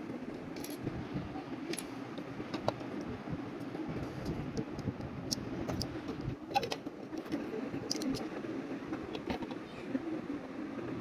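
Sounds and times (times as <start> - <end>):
steady background noise: 0.0 - 11.0
plastic bricks clicking: 6.5 - 8.3.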